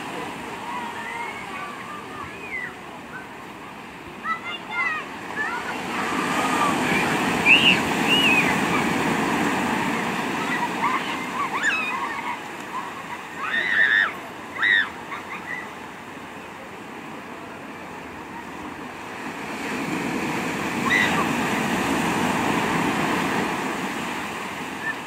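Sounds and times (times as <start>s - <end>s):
ocean surf breaking: 0.0s - 25.0s.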